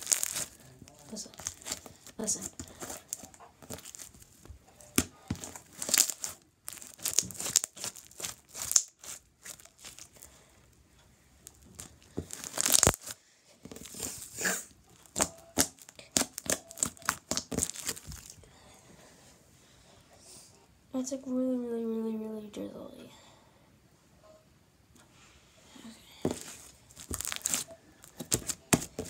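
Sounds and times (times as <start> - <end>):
slime snapping: 0.0 - 0.6, 5.0 - 10.1, 11.5 - 14.0, 15.0 - 18.4, 26.3 - 29.0
slime crackling and popping: 0.0 - 10.3, 11.4 - 18.4, 26.3 - 29.0.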